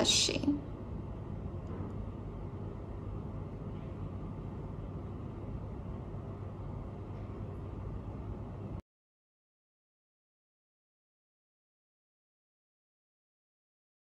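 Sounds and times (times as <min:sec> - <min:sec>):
constant low hum: 0:00.0 - 0:08.8.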